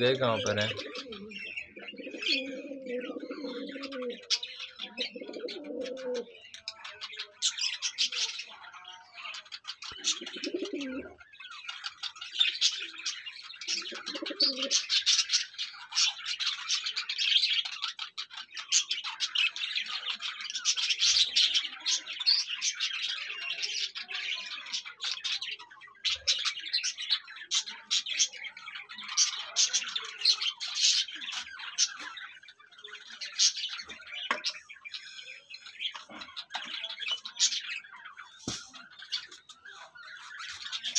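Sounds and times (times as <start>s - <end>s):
dove cooing: 0.0s - 6.4s, 10.0s - 11.2s, 13.7s - 15.1s
small birds chirping and chattering: 0.0s - 40.9s.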